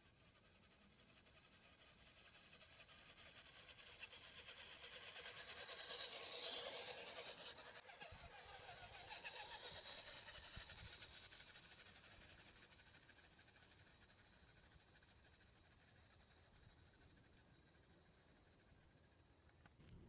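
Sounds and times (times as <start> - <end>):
rc car motor whine: 2.5 - 17.2.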